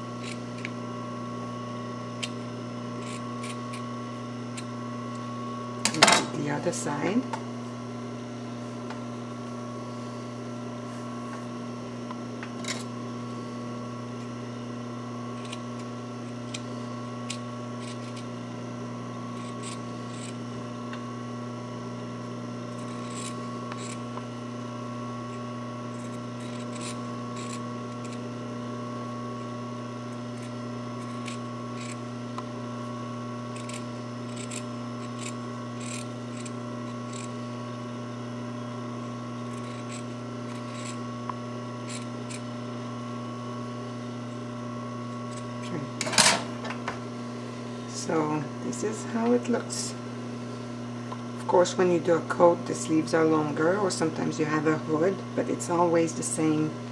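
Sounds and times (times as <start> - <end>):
steady low hum: 0.0 - 56.9
scissors snipping fabric: 33.5 - 37.4.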